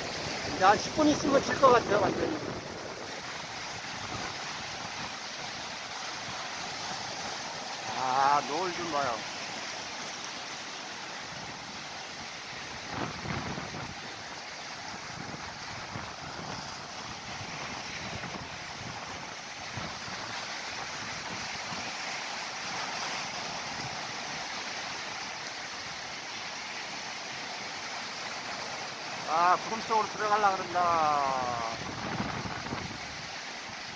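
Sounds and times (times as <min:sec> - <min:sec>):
surf washing onto rocky shore: 0:00.0 - 0:33.9
wind buffeting microphone: 0:12.8 - 0:14.1, 0:31.5 - 0:33.2.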